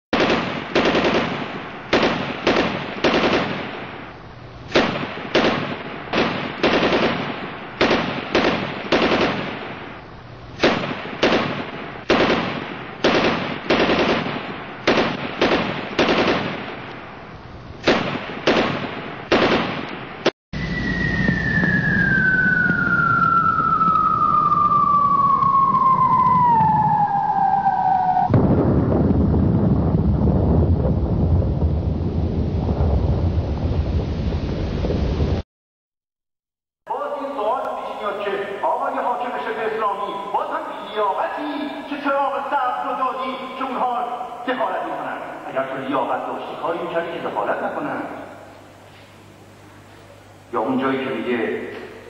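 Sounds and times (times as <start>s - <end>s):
gunshots: 0.1s - 4.1s, 4.7s - 10.0s, 10.6s - 17.0s, 17.8s - 20.3s
steady low rumble: 0.8s - 19.3s, 28.3s - 35.4s
high tone sliding down: 20.6s - 28.3s.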